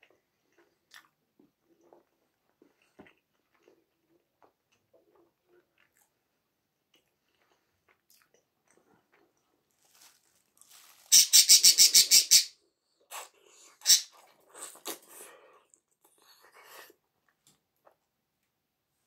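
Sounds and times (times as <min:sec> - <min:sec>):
close-up eating sounds: 0:00.0 - 0:12.2, 0:12.8 - 0:18.2.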